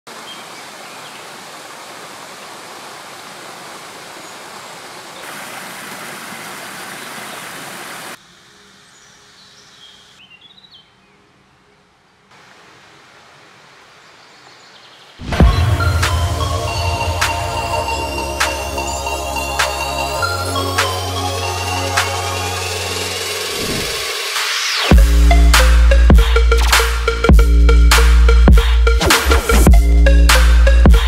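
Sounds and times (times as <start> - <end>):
stream and waterfall rushing: 0.1 - 9.7, 12.2 - 24.9.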